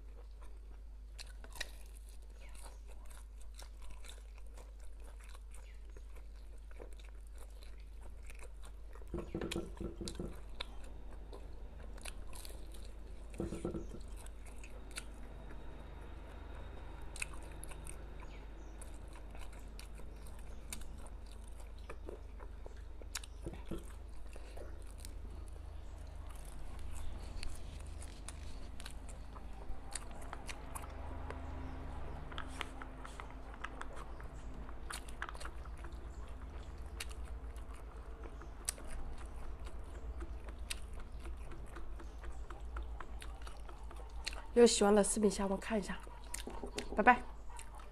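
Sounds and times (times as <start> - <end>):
chewing and biting sausage: 0.0 - 47.9
steady low hum: 7.4 - 47.9
wet mouth clicks: 46.1 - 47.9.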